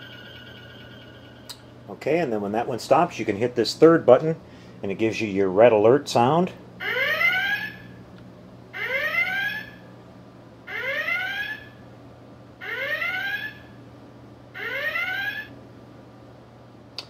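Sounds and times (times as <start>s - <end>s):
rising whoop alarm klaxon: 6.8s - 7.9s, 8.7s - 9.8s, 10.7s - 11.8s, 12.6s - 13.8s, 14.6s - 15.5s.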